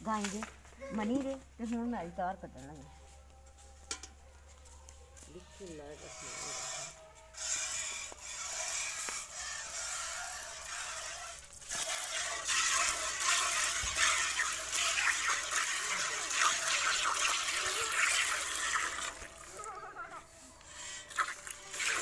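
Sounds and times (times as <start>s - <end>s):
milk squirting into steel pail: 6.2s - 19.7s, 20.7s - 22.0s.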